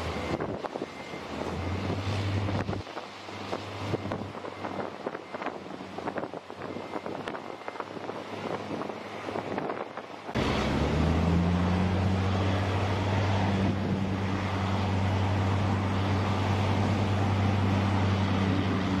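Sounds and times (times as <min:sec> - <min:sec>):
vehicle engine low drone: 0:00.0 - 0:19.0.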